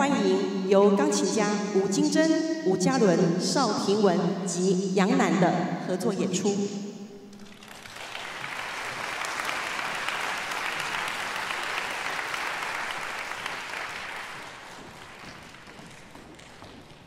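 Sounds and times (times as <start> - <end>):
audience applauding: 7.4 - 17.0.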